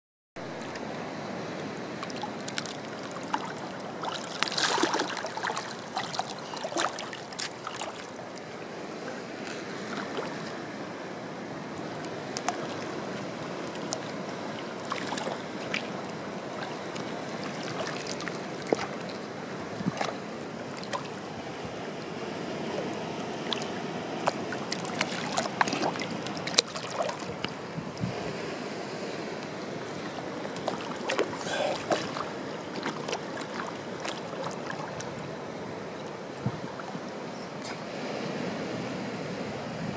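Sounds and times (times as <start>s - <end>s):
water splashing and sloshing: 0.4s - 39.9s
short sharp splashes: 2.1s - 8.0s, 30.6s - 34.9s.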